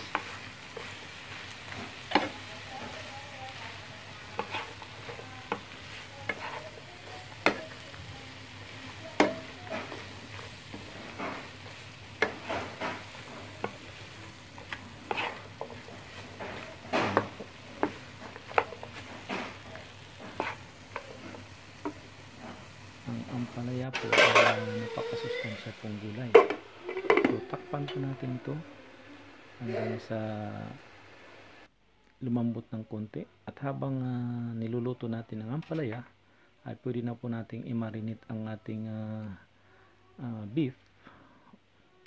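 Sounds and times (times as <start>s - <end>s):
spatula scraping a pan: 0.0s - 23.4s, 24.0s - 25.3s
vegetables sizzling: 0.0s - 31.7s.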